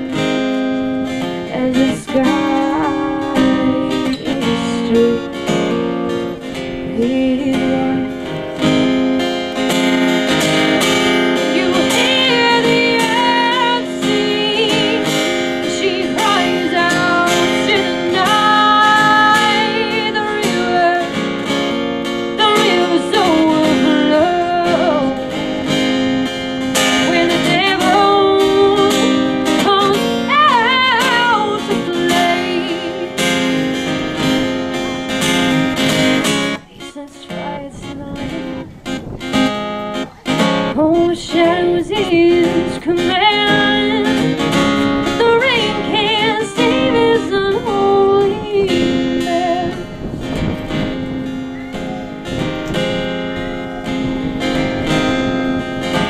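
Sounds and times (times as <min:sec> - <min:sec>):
strummed acoustic guitar: 0:00.0 - 0:56.0
woman singing: 0:01.2 - 0:21.6, 0:22.3 - 0:25.8, 0:26.7 - 0:34.4, 0:36.5 - 0:38.8, 0:40.4 - 0:50.1.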